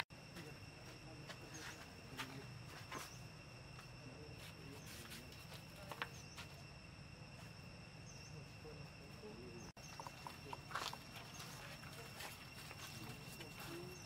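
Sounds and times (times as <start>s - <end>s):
high-pitched insect drone: 0.0s - 14.0s.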